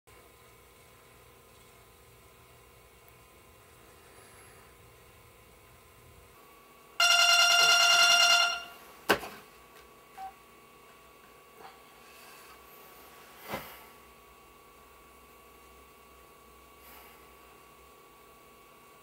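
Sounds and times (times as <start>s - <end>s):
hand slapping alarm: 7.0s - 8.7s
electronic alarm beeping: 7.0s - 8.8s.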